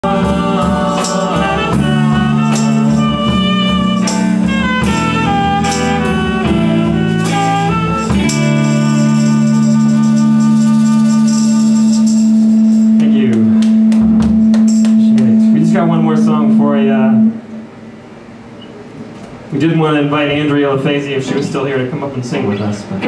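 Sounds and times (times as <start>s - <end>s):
saxophone melody: 0.0s - 18.6s
hand percussion shaking: 0.1s - 6.2s, 6.8s - 15.5s.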